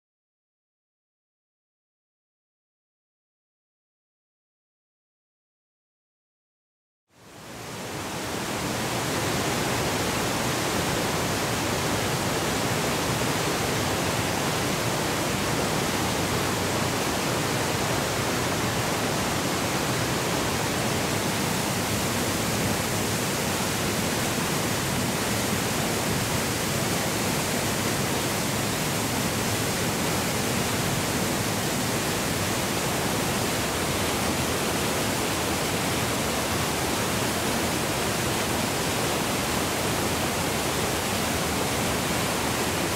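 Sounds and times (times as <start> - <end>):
waterfall rushing over rocks: 7.2 - 42.9.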